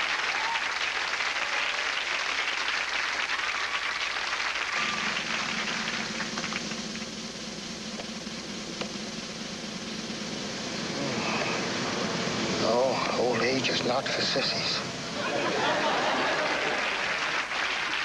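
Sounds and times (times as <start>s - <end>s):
audience applauding: 0.0s - 6.8s, 15.4s - 18.0s
low steady hum: 4.0s - 17.8s.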